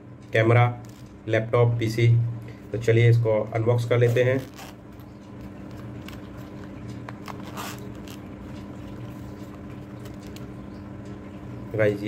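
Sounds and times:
steady low hum: 0.0s - 12.0s
packaging rustling: 4.2s - 10.6s.

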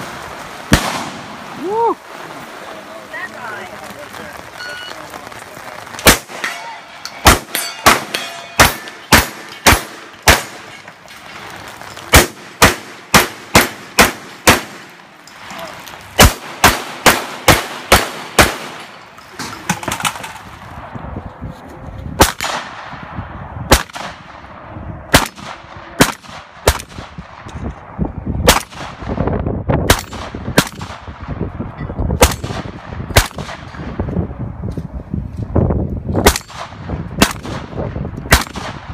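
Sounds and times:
shotgun shots: 0.7s - 1.4s, 6.0s - 10.8s, 12.1s - 15.0s, 16.2s - 20.4s, 22.2s - 23.0s, 23.7s - 24.4s, 25.1s - 27.5s, 28.4s - 29.2s, 29.9s - 31.3s, 32.2s - 33.9s, 36.2s - 38.9s
steel targets ringing: 6.4s - 9.6s.

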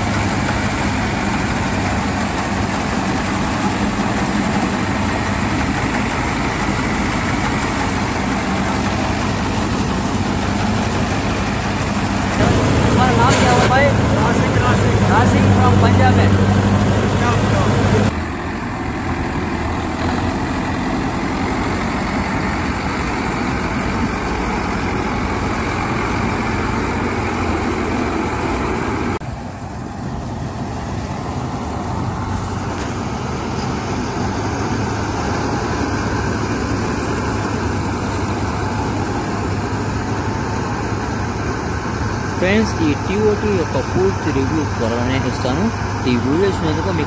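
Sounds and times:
cutting and threshing machinery: 0.0s - 29.2s
diesel engine under load: 0.0s - 47.0s.

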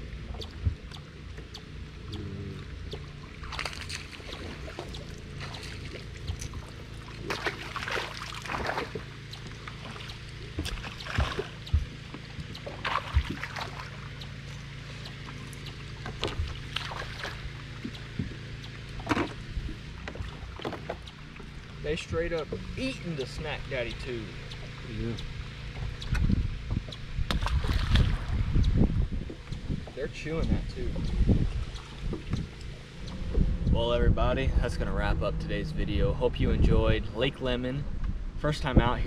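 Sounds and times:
boat motor hum: 0.0s - 39.0s
fish splashing at water surface: 3.3s - 11.6s, 12.6s - 14.2s, 16.2s - 17.7s.

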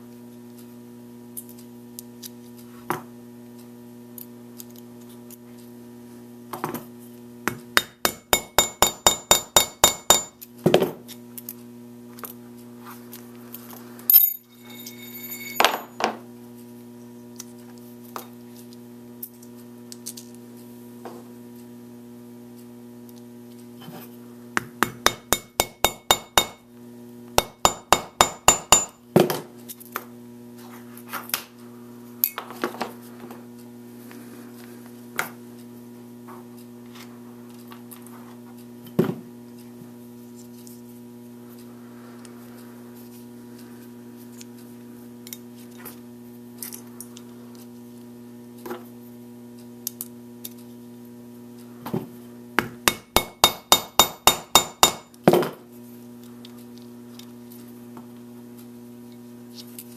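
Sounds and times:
mallet striking metal tool: 7.8s - 10.4s, 25.0s - 26.6s, 27.4s - 29.0s, 52.8s - 55.1s.

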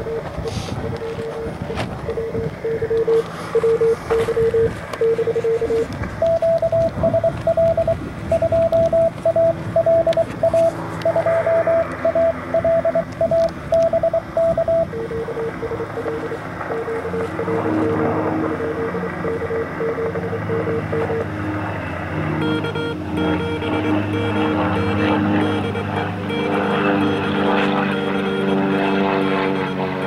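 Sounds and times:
higher-pitched morse code tone: 0.0s - 17.9s, 18.5s - 21.3s, 22.4s - 30.0s
lower-pitched morse code tone: 0.0s - 21.3s, 22.2s - 30.0s
radio band hiss: 0.1s - 5.9s, 15.3s - 21.3s.

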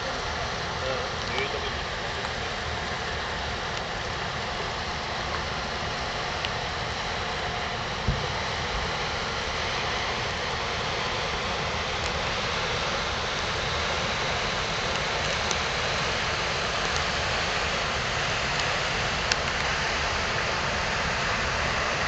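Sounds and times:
water rushing: 0.0s - 22.0s
brief low thump: 8.0s - 8.2s.

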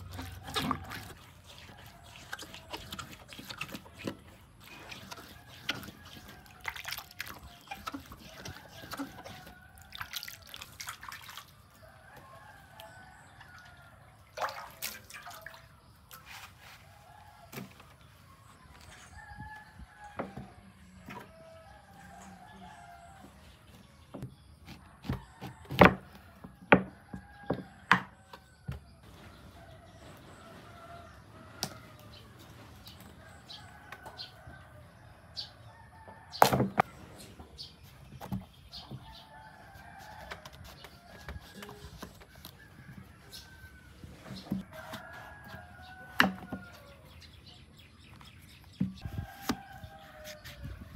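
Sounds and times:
rooster crowing: 44.6s - 47.0s.

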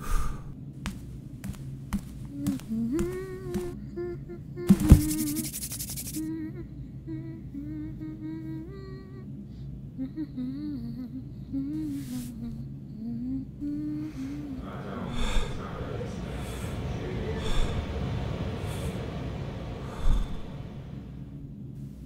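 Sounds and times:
person humming a slow tune: 2.3s - 5.4s, 6.2s - 14.6s
noisy rush: 14.4s - 22.0s.

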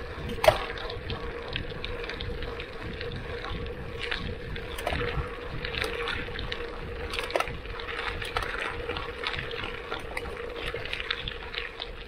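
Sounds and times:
bike crackles and rattles: 0.0s - 12.0s
bike tyres rolling on dirt: 0.0s - 12.0s
faint steady hum: 0.0s - 12.0s
wind buffeting microphone: 0.0s - 12.0s.

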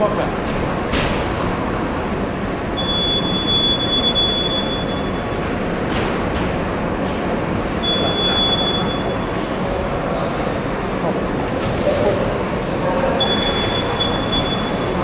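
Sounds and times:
metro train rumble: 0.0s - 11.6s.

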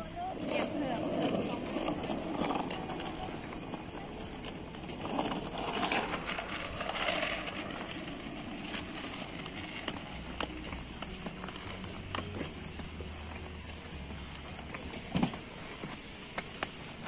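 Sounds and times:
skate wheels rolling on pavement: 0.0s - 17.0s.

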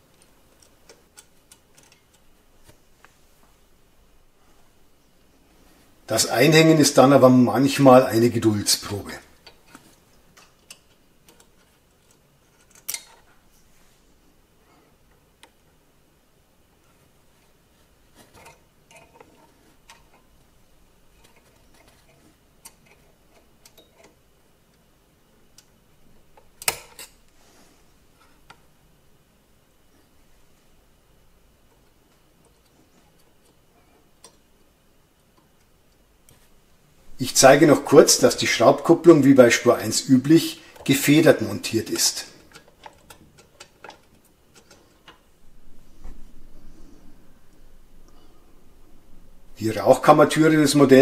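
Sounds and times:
small metal clicks and taps: 34.2s - 34.4s.

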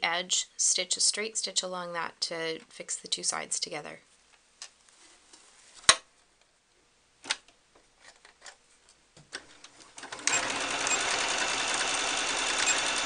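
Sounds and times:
sewing machine stitching: 9.5s - 13.0s.

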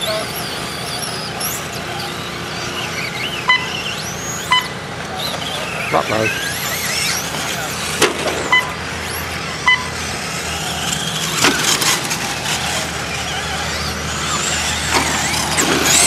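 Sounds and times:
electric motors whining high: 0.0s - 16.0s
short electronic beeps: 3.4s - 4.8s, 8.4s - 8.8s, 9.6s - 10.0s.

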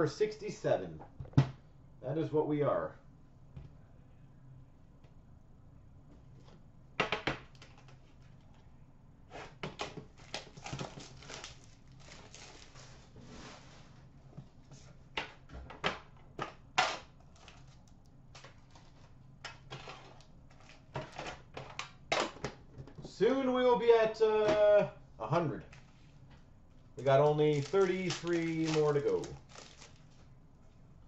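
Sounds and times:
card packs crinkling: 10.0s - 13.2s, 17.2s - 22.4s, 27.0s - 30.3s.

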